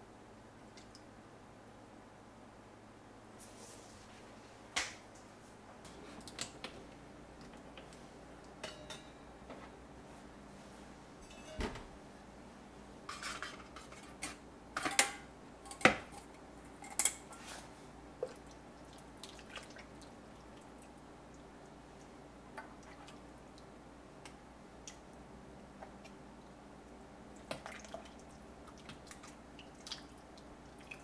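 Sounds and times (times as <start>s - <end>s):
metal bowls clinking: 8.6s - 9.4s, 11.2s - 11.8s.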